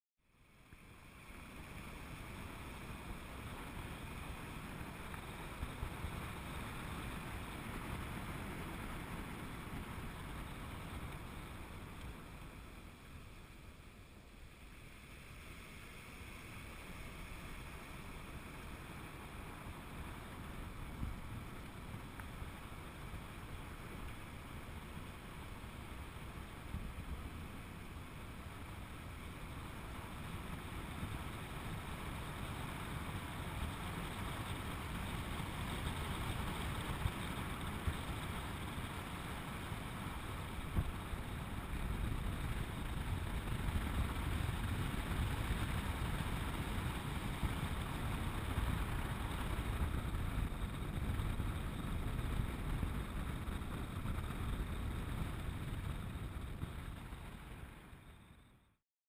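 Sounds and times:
low road rumble: 0.2 - 58.8
wind rushing over microphone: 16.6 - 58.2.

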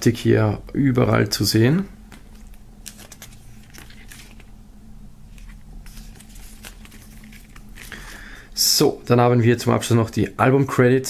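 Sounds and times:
booklet pages turning: 2.1 - 4.6, 5.3 - 8.2.

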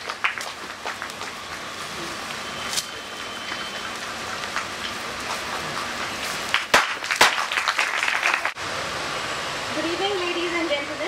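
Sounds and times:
audience applause: 0.0 - 2.2, 3.2 - 8.6.

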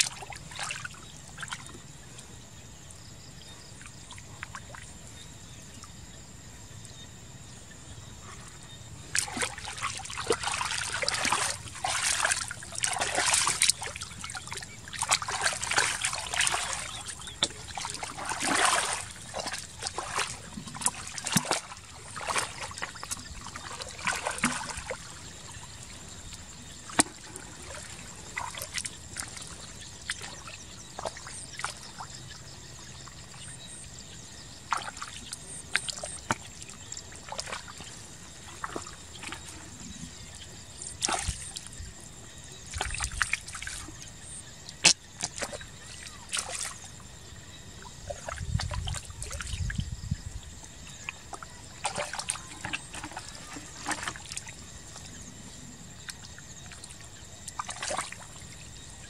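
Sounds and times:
splashing in muddy water: 0.0 - 2.3, 3.6 - 5.2, 8.2 - 59.0
water dripping: 9.1 - 30.4.

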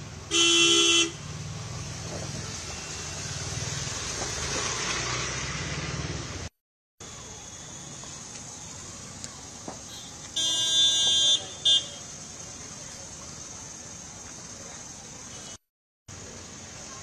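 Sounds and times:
street traffic noise: 0.0 - 17.0
vehicle horn honking: 0.3 - 1.2, 9.9 - 12.0.

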